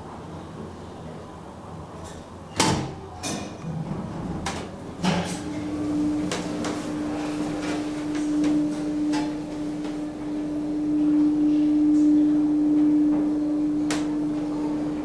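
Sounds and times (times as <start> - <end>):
elevator car humming: 3.1 - 15.0.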